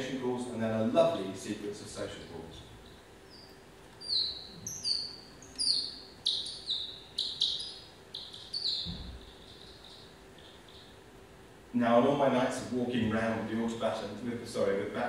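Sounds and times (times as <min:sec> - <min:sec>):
slowed bat chirps: 0:02.9 - 0:11.1.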